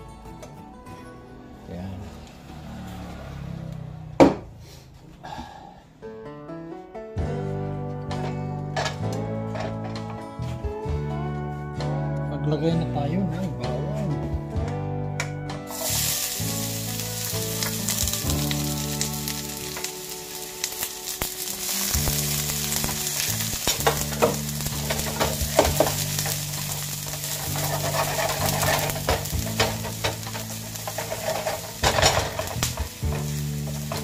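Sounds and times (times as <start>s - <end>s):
garlic sizzling in oil: 15.7s - 34.0s
spatula scraping pan: 21.8s - 34.0s.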